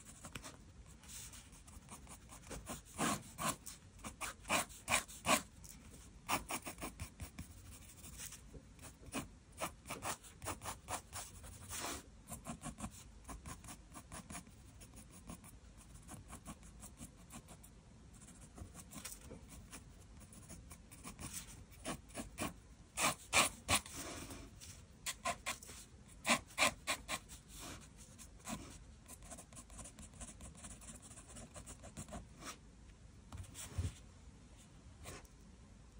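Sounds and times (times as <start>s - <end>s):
pencil scratching on paper: 0.0s - 32.6s.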